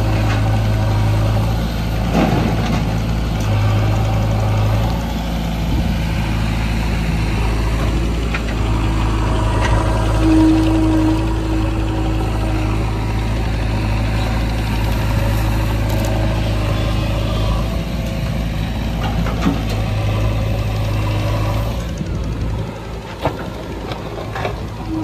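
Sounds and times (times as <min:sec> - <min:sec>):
backhoe digging soil: 0:00.0 - 0:25.0
diesel engine running: 0:00.0 - 0:25.0.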